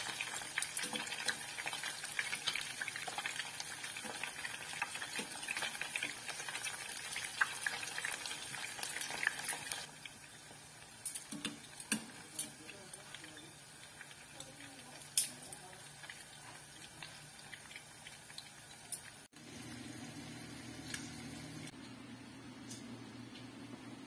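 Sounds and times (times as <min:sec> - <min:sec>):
chicken sizzling in hot oil: 0:00.0 - 0:21.7
metal tongs against pot: 0:11.0 - 0:12.6, 0:14.4 - 0:15.6.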